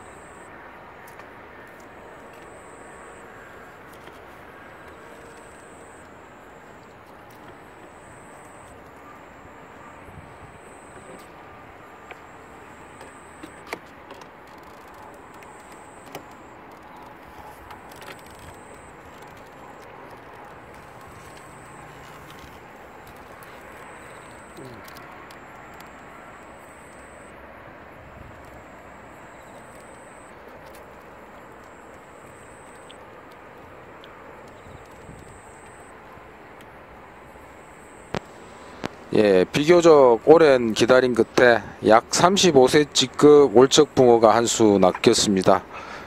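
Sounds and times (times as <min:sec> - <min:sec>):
high thin insect trill: 0:14.5 - 0:27.4.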